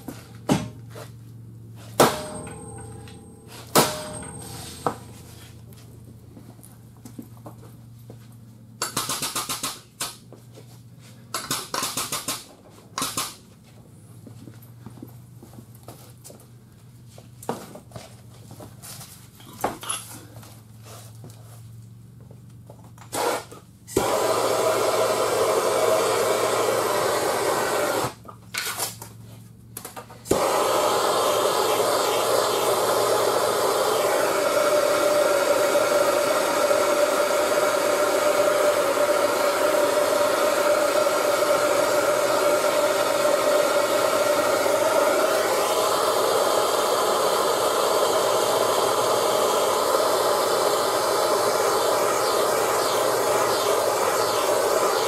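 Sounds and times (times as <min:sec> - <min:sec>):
torch burning with hiss: 0:23.1 - 0:28.2, 0:30.3 - 0:55.0.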